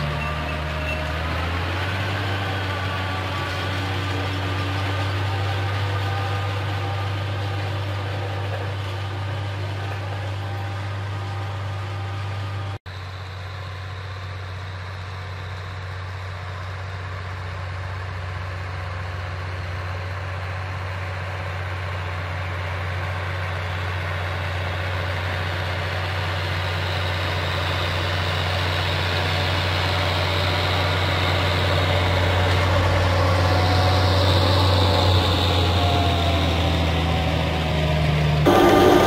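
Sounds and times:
tractor diesel engine running: 0.0s - 39.0s.

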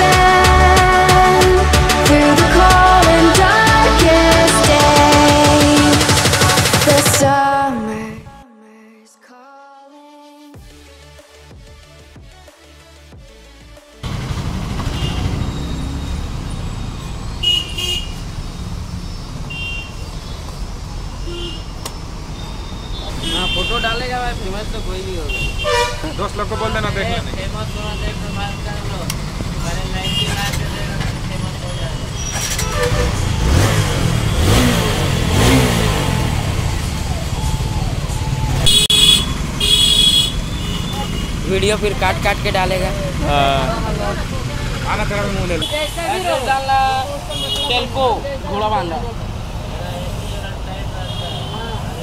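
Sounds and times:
street traffic rumbling: 0.0s - 8.3s, 12.7s - 52.0s
engine revving: 14.0s - 19.5s, 26.3s - 45.6s
vehicle horn toots: 14.8s - 16.0s, 17.4s - 18.3s, 19.5s - 20.2s, 21.2s - 21.8s, 22.5s - 24.6s, 25.2s - 26.8s, 30.0s - 30.7s, 31.7s - 35.8s, 38.6s - 41.4s, 47.3s - 48.0s, 50.1s - 51.7s
high-pitched horn blare: 25.3s - 26.3s, 38.6s - 41.3s.

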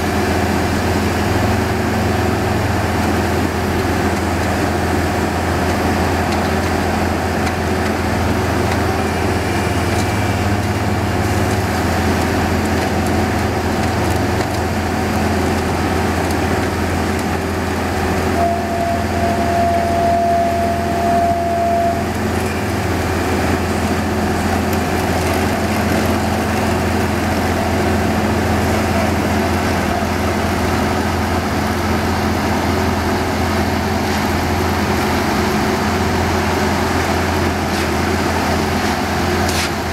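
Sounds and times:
construction machinery engines droning: 0.0s - 39.9s
steady tone: 18.3s - 22.2s.

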